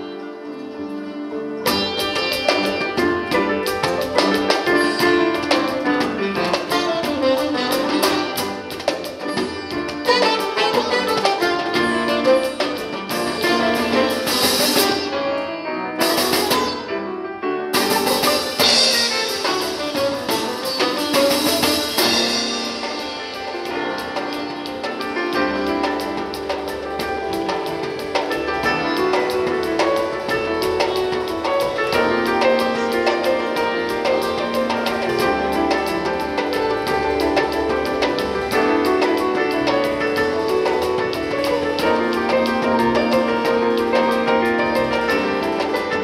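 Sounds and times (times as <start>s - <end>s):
double bass: 0.0s - 17.0s, 17.7s - 46.0s
saxophone: 6.4s - 16.8s.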